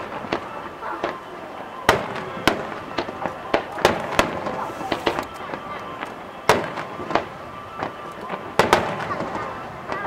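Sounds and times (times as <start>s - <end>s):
firework shells bursting: 1.8s - 9.4s.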